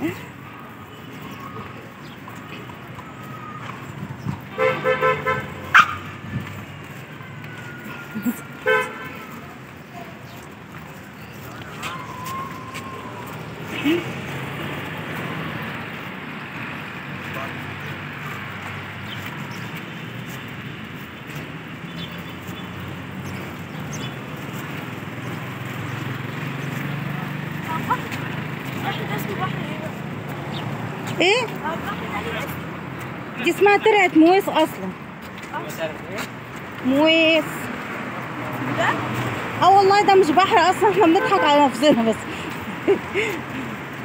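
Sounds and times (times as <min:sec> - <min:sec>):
low traffic hum: 0:00.0 - 0:44.0
vehicle horn beeps: 0:04.5 - 0:05.7, 0:06.9 - 0:09.4, 0:40.9 - 0:41.7.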